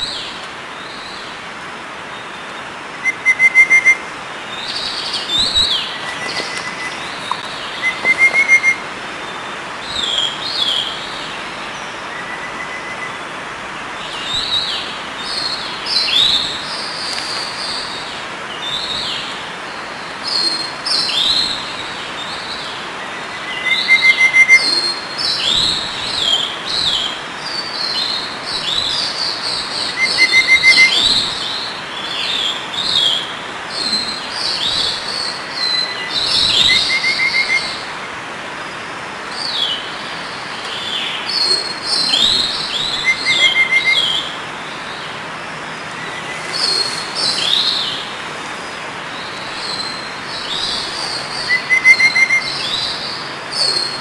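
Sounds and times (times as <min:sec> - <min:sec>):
small birds chirping: 0:00.0 - 0:38.1, 0:38.7 - 0:54.0
steady background hiss: 0:00.0 - 0:54.0
bird trill: 0:04.7 - 0:08.8, 0:23.4 - 0:27.0, 0:29.8 - 0:37.8, 0:40.8 - 0:44.4, 0:49.2 - 0:54.0.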